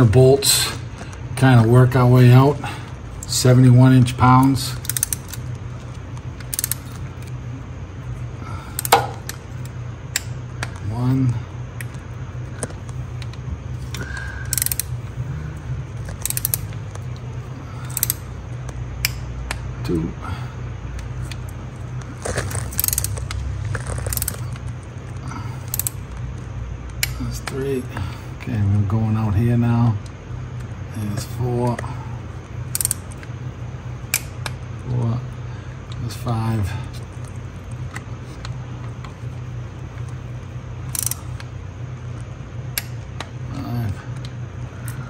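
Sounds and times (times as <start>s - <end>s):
steady low hum: 0.0s - 45.0s
torque wrench ratchet clicking: 4.7s - 5.5s, 6.4s - 7.3s, 8.8s - 10.3s, 13.9s - 15.0s, 16.0s - 16.8s, 17.8s - 18.3s, 22.6s - 24.6s, 25.6s - 26.0s, 32.7s - 33.3s, 40.8s - 41.5s
torque wrench sharp click: 14.5s - 14.9s, 16.2s - 16.7s, 17.9s - 18.2s, 32.7s - 33.0s, 40.9s - 41.2s.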